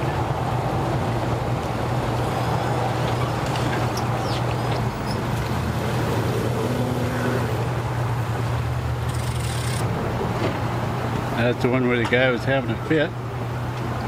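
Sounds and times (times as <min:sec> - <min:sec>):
propeller churning water: 0:00.0 - 0:14.0
outboard motor running: 0:01.8 - 0:11.1.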